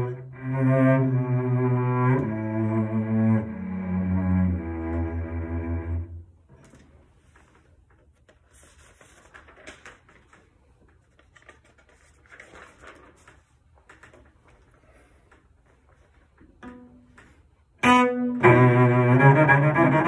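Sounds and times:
instrument handling rustles and clicks: 6.6s - 17.4s.

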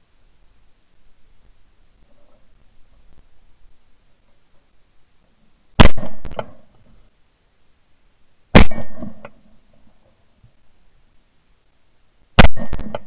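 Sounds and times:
shotgun shots: 5.8s - 6.6s, 8.6s - 9.2s, 12.4s - 13.0s.

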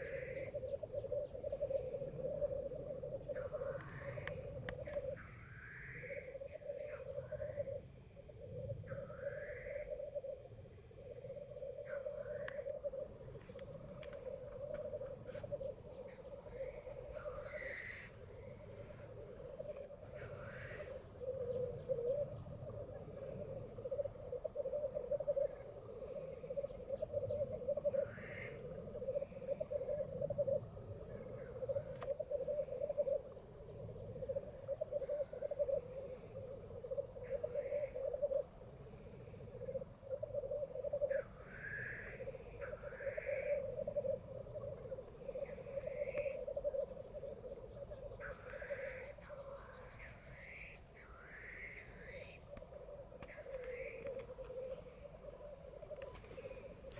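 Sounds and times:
grouse bubbling warble: 0.0s - 38.6s
harsh hissing bird calls: 3.3s - 7.7s, 8.9s - 10.0s, 15.2s - 22.2s, 27.9s - 28.7s, 41.1s - 43.6s, 45.4s - 52.5s, 53.3s - 54.0s.

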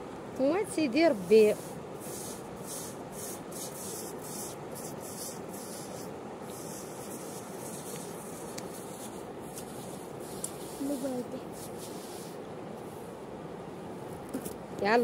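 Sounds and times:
hands scraping damp sand: 1.2s - 12.4s.

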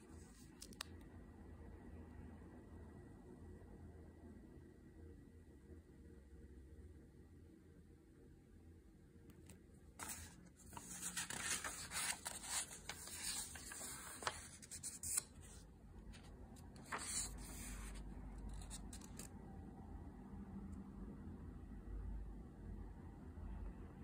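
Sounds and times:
paper pages rustling: 10.0s - 19.3s.

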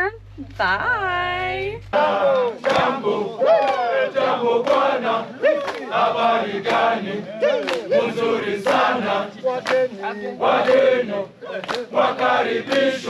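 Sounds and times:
group singing and chanting: 0.6s - 13.0s
people shouting and whooping: 1.9s - 4.3s, 5.3s - 5.9s, 7.3s - 8.2s.

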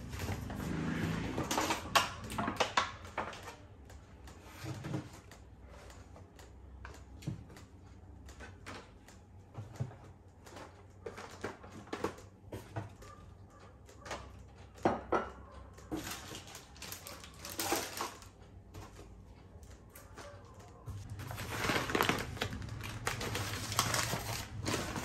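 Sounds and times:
plastic packaging rustling: 9.7s - 12.5s, 15.9s - 25.0s.

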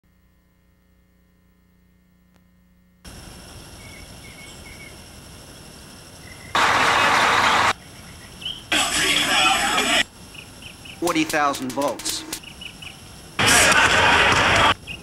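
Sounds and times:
faint steady hum: 0.0s - 15.0s
steady background hiss: 3.0s - 15.0s.

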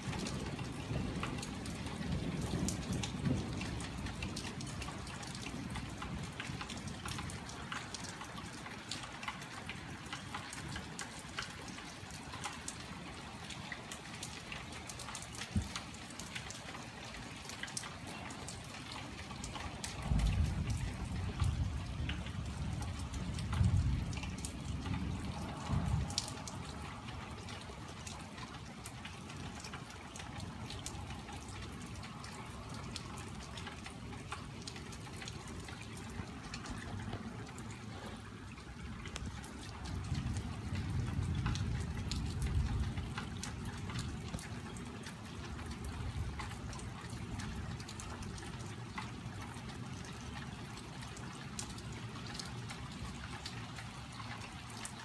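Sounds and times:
rain falling: 0.0s - 55.0s
water trickling and dripping: 0.0s - 55.0s
thunder rumble: 0.2s - 6.3s, 19.8s - 28.0s, 35.9s - 44.3s.

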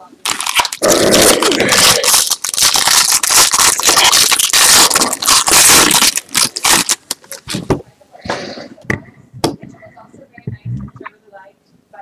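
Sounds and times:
foil wrapper crinkling and tearing: 0.0s - 7.6s.

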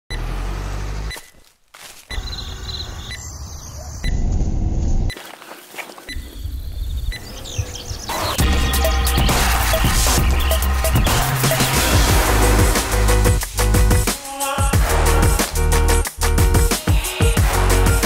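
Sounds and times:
high chirps: 2.1s - 4.3s
loud music: 8.1s - 18.0s.

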